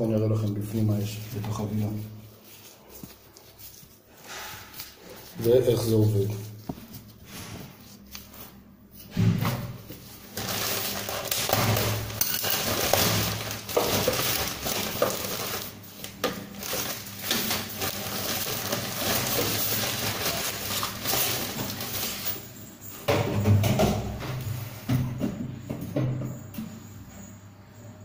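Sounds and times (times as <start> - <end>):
plastic bag crinkling: 9.8 - 22.6
plastic pieces knocking: 10.3 - 22.2.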